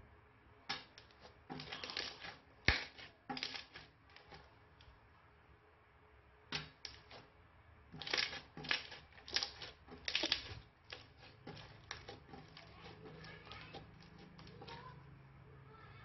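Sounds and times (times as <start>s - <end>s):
slime crackling pops: 0.7s - 3.9s, 8.0s - 12.9s.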